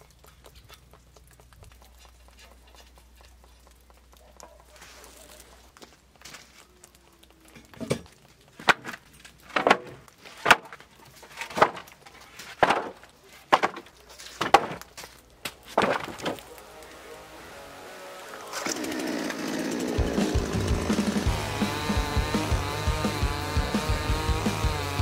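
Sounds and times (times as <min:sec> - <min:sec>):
bark and wood bits falling: 0:04.2 - 0:17.0, 0:18.3 - 0:19.4
wooden logs knocking on sawhorse: 0:07.8 - 0:14.9, 0:15.7 - 0:16.5.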